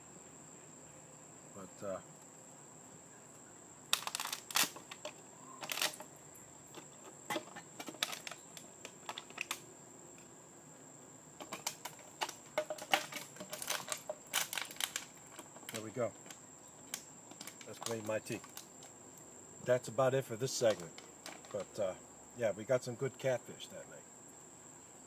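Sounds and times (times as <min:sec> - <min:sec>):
metal cup clinking and rattling: 0:11.4 - 0:15.8.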